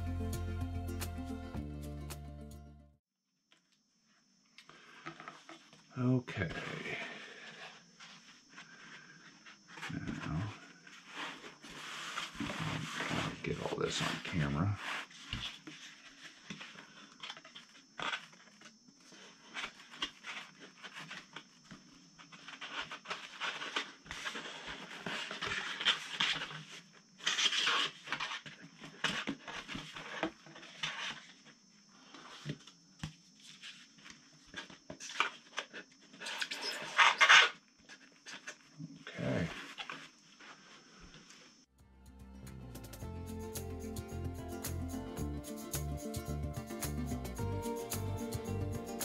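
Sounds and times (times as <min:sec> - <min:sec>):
plastic parts rubbing and scraping: 0:07.5 - 0:31.4, 0:33.4 - 0:41.3.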